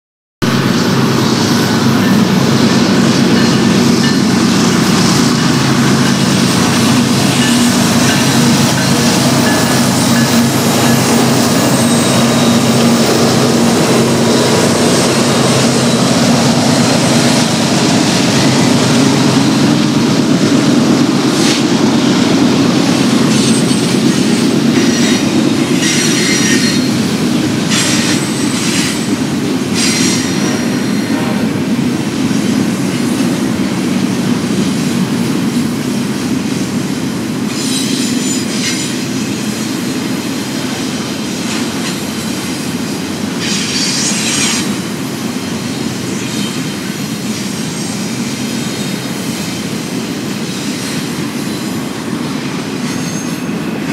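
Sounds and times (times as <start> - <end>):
diesel locomotive engine drone: 0.4 - 53.9
train wheel clicks: 22.9 - 30.6
wheel squeals: 37.5 - 39.0, 52.8 - 53.6.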